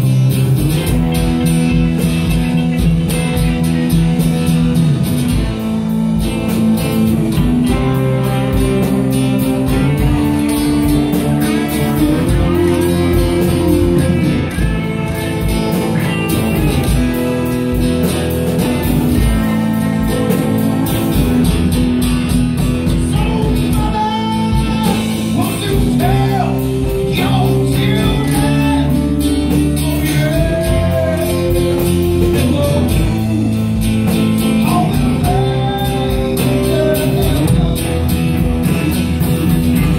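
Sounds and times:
bass guitar: 0.0s - 39.9s
drum kit beat: 0.0s - 39.9s
electric guitars: 0.0s - 39.9s
person singing: 22.8s - 33.8s, 34.5s - 39.2s.

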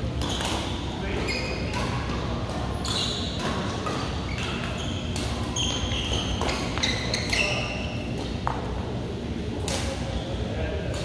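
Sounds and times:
hum of a large hall: 0.0s - 11.0s
shoes squeaking on court: 0.2s - 8.4s.

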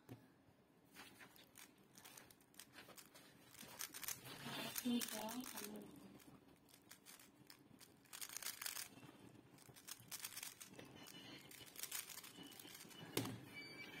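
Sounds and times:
puzzle cube layers clicking: 1.5s - 6.0s, 6.6s - 9.0s, 9.6s - 10.7s, 11.5s - 13.0s.

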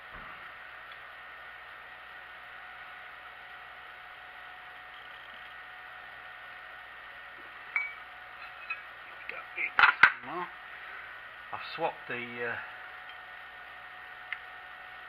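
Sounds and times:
faint whine: 0.0s - 15.0s
workshop hum: 0.0s - 15.0s
metal tool clinking on vise: 7.8s - 8.9s.

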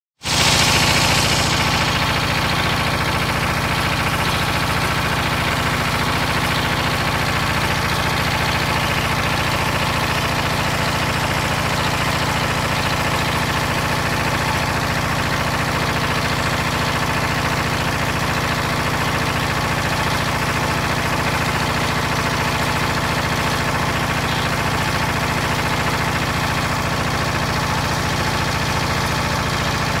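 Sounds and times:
diesel engine running steadily: 0.2s - 30.0s.

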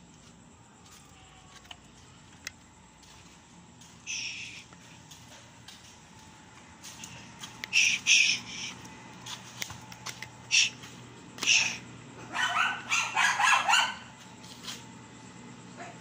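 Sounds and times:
dog yapping: 12.2s - 14.1s.

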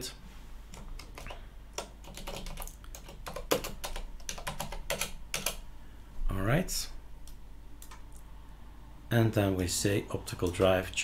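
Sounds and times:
keyboard typing: 0.7s - 5.6s, 7.2s - 8.2s.

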